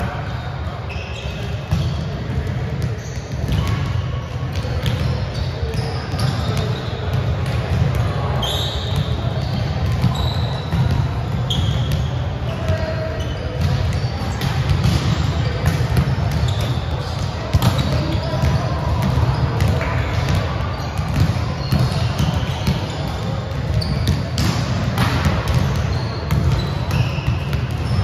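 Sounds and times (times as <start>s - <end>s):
sneaker squeaks: 0.1s - 28.0s
volleyballs smacking: 24.1s - 25.7s.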